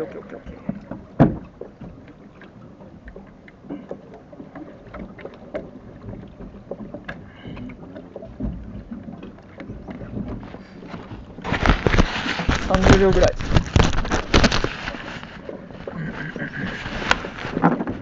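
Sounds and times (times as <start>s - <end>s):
oars and boat fittings clicking: 0.0s - 18.0s.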